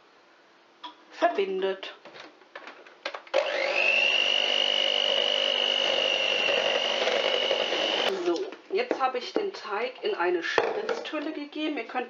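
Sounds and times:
electric hand mixer whine: 3.3 - 8.2.

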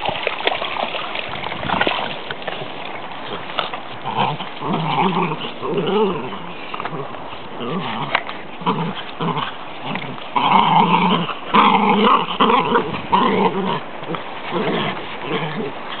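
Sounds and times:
dogs growling: 3.2 - 16.0.

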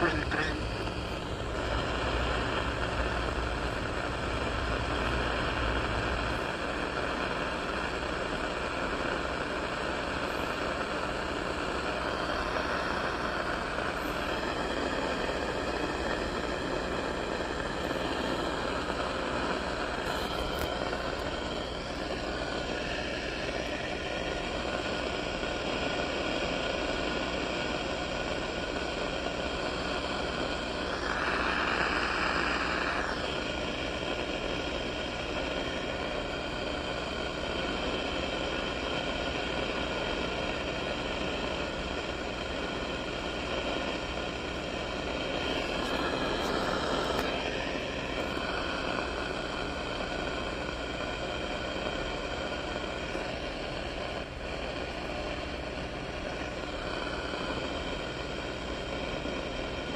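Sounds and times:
louder rush of noise: 0.0 - 8.8, 30.6 - 34.0
faint humming tones: 0.0 - 59.9
radio static hiss: 0.0 - 59.9.

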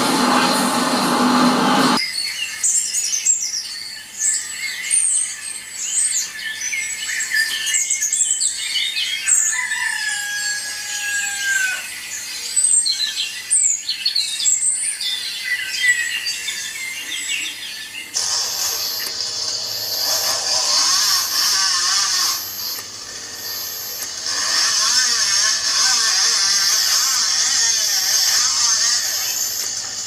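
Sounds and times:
small birds chirping and trilling: 2.0 - 18.2.

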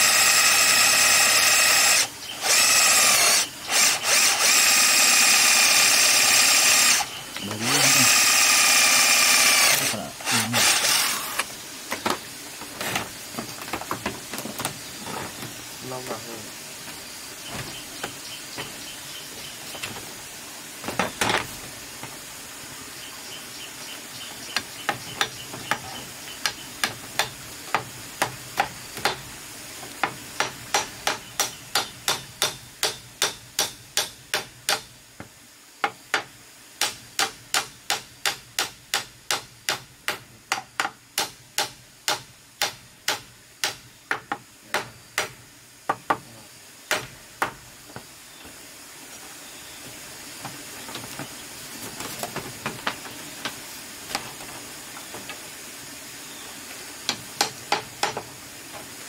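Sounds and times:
machete knocking on bamboo: 35.8 - 46.2, 46.9 - 47.6.

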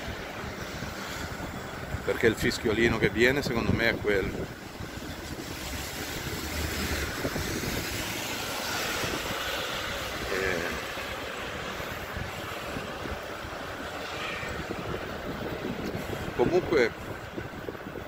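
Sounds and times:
tyre and wind hiss: 0.0 - 18.0.

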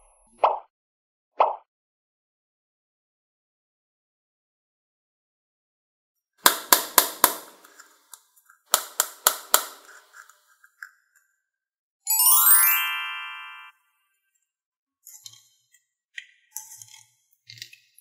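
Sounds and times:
rising chime sweep: 12.1 - 13.7.

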